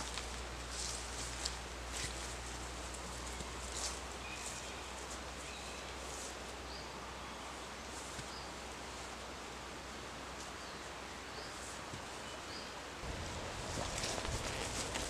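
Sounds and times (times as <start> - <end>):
steady outdoor hiss: 0.0 - 15.0
faint rustling: 13.0 - 15.0.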